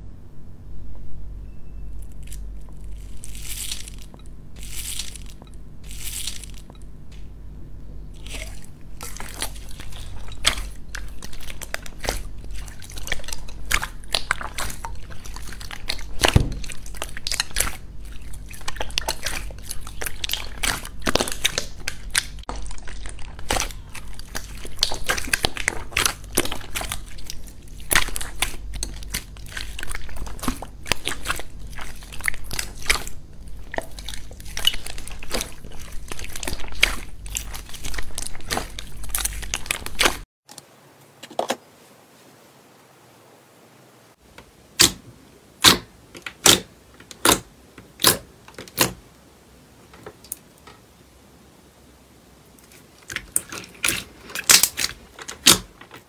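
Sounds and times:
hands squishing slime: 0:08.2 - 0:40.2, 0:52.6 - 0:56.0.

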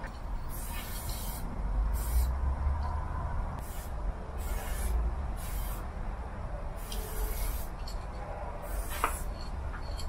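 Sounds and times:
spray paint can hissing: 0:00.4 - 0:02.3, 0:03.6 - 0:05.9, 0:06.8 - 0:07.8, 0:08.6 - 0:09.3.

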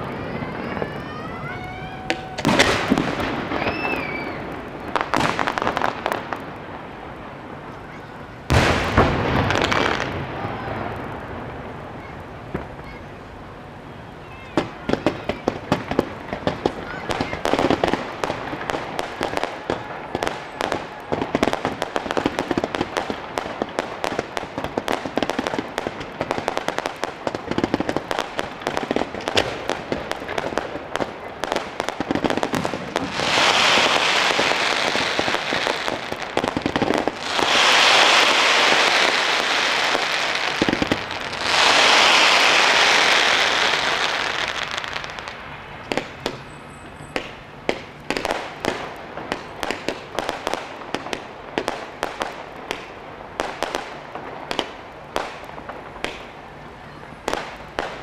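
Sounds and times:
fireworks pops and crackles: 0:00.0 - 0:13.4, 0:14.4 - 0:58.0
loud rushing firework hisses: 0:14.7 - 0:46.5.

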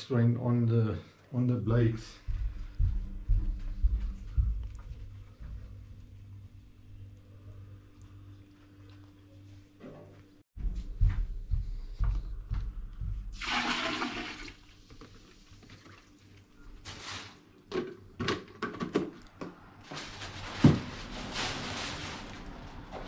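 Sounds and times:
water pouring into plastic tub: 0:13.4 - 0:16.3.

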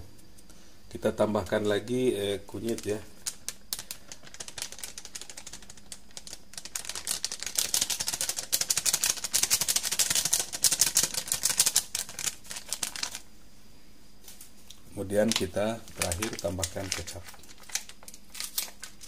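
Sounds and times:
tiny crackling clicks: 0:02.7 - 0:13.2.

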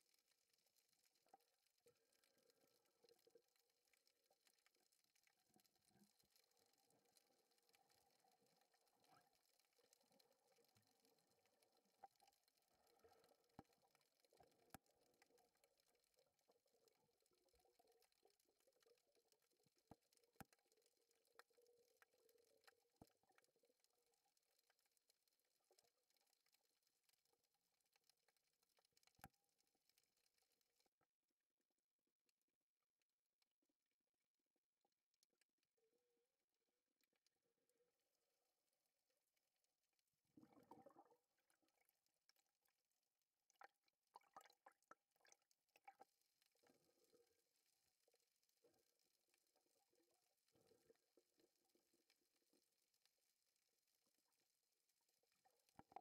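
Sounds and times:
faint underwater clicks: 0:00.0 - 0:33.6, 0:34.8 - 0:56.0.

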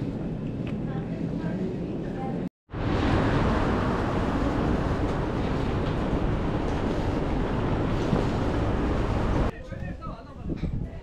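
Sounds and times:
idling buses and traffic rumble: 0:02.8 - 0:09.5.

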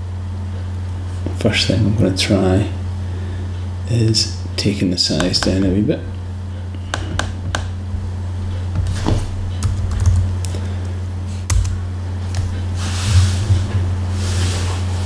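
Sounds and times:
low electrical hum: 0:00.0 - 0:15.0
keyboard keystrokes: 0:11.5 - 0:11.8.

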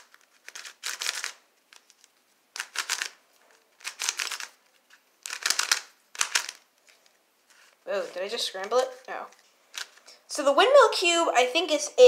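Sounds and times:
plastic puzzle cube clicking: 0:00.0 - 0:06.7, 0:09.7 - 0:10.0.

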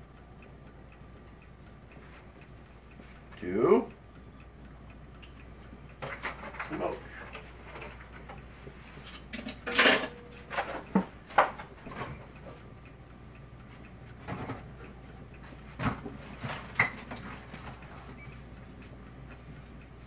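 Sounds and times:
dishes and utensils clinking: 0:09.0 - 0:11.1.

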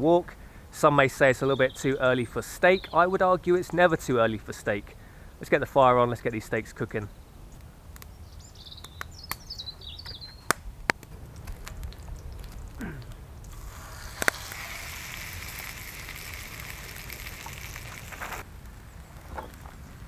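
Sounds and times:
bird chirping: 0:01.4 - 0:03.1, 0:08.1 - 0:10.5
wood fire crackling: 0:07.5 - 0:08.2, 0:08.8 - 0:20.0
meat sizzling in a pan: 0:13.5 - 0:18.4.

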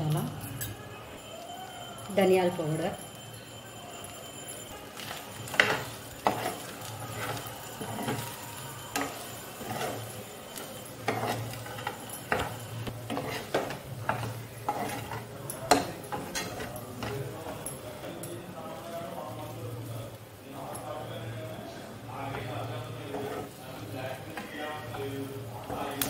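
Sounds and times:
metal spoon scraping a frying pan: 0:05.0 - 0:17.8, 0:22.2 - 0:26.0.

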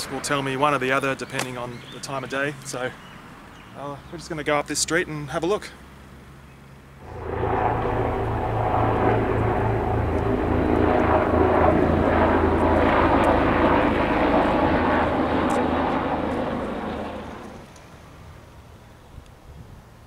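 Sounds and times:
airplane flying past: 0:07.0 - 0:17.8.

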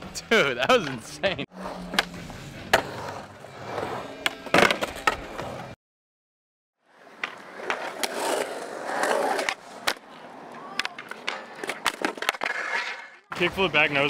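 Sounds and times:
skateboard wheels rolling on concrete: 0:00.6 - 0:05.8, 0:06.8 - 0:14.0
skateboard scraping on coping: 0:01.5 - 0:04.2, 0:06.9 - 0:14.0
skateboard clacks: 0:09.0 - 0:13.4.

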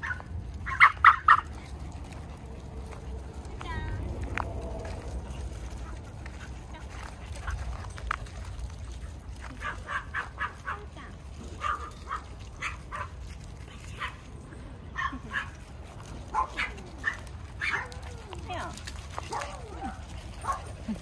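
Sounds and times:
small dogs yipping: 0:00.0 - 0:02.3, 0:09.4 - 0:14.3, 0:14.9 - 0:15.6, 0:16.3 - 0:21.0.

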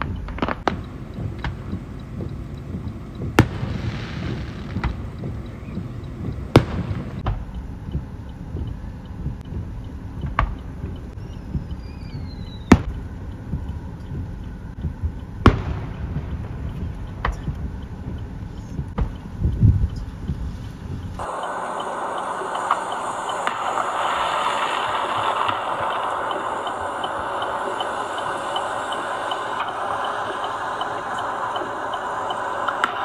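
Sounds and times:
firework shells bursting: 0:00.0 - 0:07.5, 0:21.2 - 0:33.0
low rumble: 0:00.0 - 0:33.0.

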